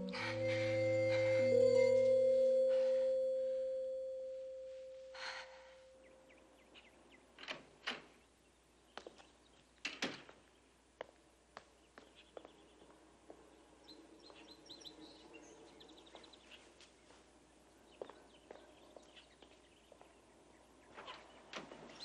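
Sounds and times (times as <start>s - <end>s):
sustained music chord: 0.0s - 6.3s
bird chirps: 0.0s - 7.2s.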